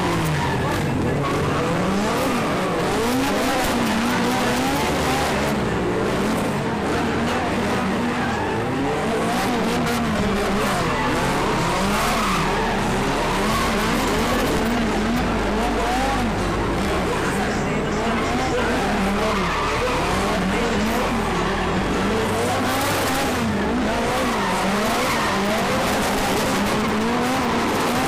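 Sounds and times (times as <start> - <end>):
car engine revving: 0.0 - 28.0
tyres squealing: 7.3 - 28.0.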